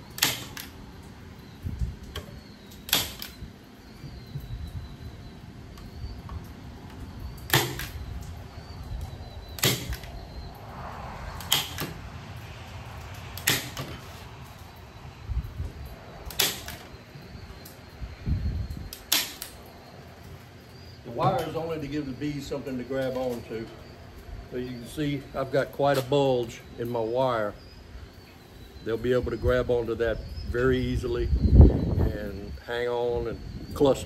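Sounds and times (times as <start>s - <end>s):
staple gun firing into wood: 16.3s - 16.8s.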